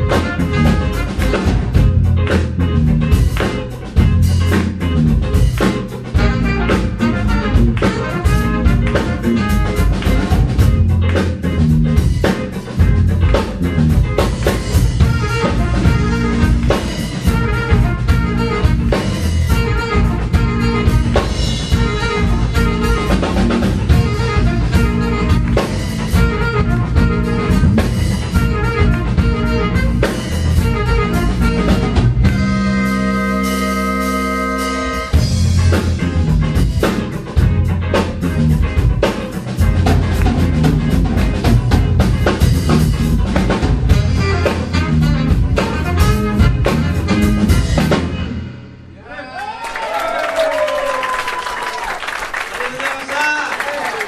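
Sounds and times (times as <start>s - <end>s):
saxophone: 0.0s - 2.3s, 6.0s - 11.0s, 13.6s - 35.8s, 43.8s - 48.1s
drum kit: 0.0s - 49.0s
electric bass: 0.0s - 49.0s
electric guitar: 0.0s - 49.0s.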